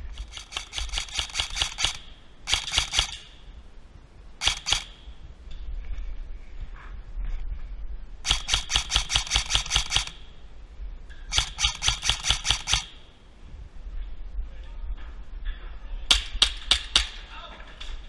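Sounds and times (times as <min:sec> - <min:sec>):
airsoft rifle rapid shots: 0:00.0 - 0:03.3, 0:04.4 - 0:05.1, 0:08.2 - 0:10.3, 0:11.3 - 0:13.0.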